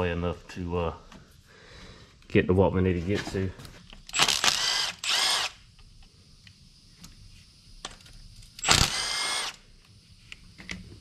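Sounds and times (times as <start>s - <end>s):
cordless power tool whirring: 4.1s - 5.6s, 8.6s - 9.6s.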